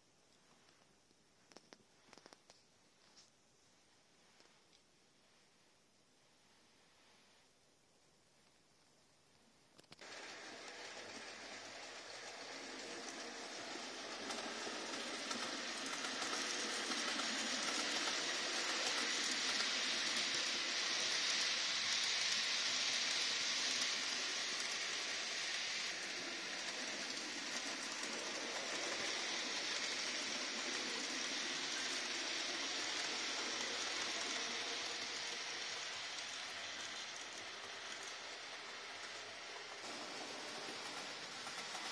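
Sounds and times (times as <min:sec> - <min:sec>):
model train rolling on track: 0:09.8 - 0:41.9.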